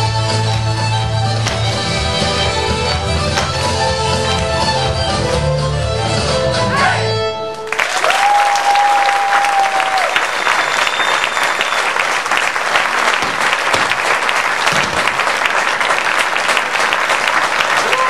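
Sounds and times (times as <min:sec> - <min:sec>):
audience applauding: 0:07.6 - 0:18.0.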